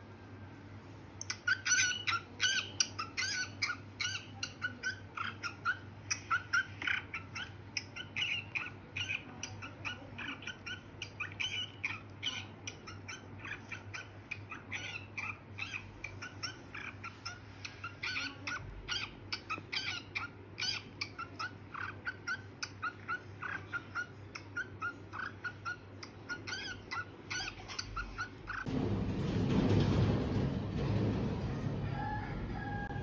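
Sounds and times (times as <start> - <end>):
cockatiel chirping: 1.2 - 28.7.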